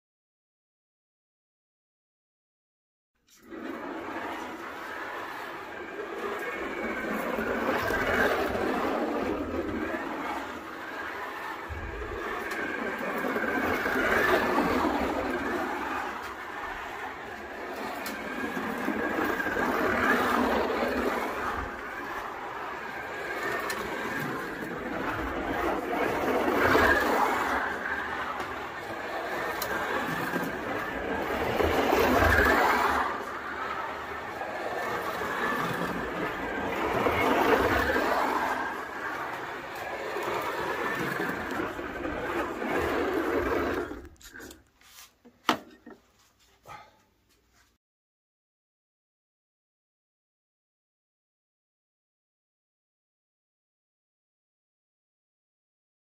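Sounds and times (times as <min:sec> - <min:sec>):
wheels rattling in slot: 0:03.3 - 0:44.6
slot car motor whine: 0:03.4 - 0:44.2.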